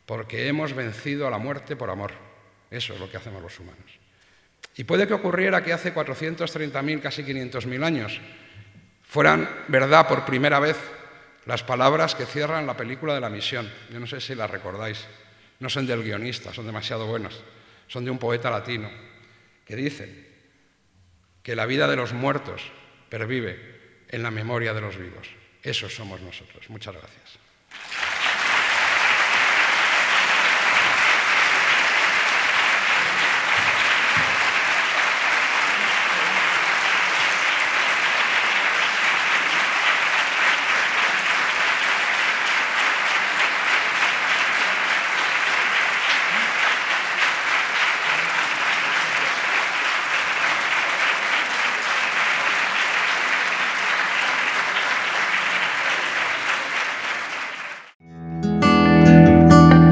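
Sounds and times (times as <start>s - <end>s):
audience applauding: 27.7s - 58.0s.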